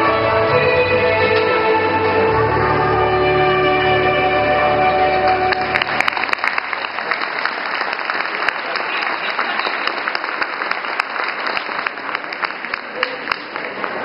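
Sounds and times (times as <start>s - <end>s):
skating music: 0.0s - 6.4s
audience applauding: 5.0s - 14.0s.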